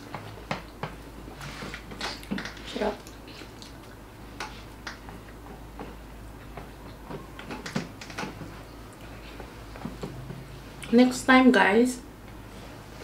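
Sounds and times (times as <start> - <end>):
chewing sounds: 2.0 - 8.3.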